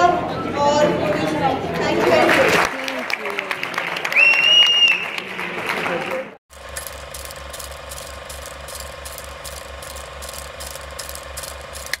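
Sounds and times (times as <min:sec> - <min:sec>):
film projector clatter: 0:06.5 - 0:12.0.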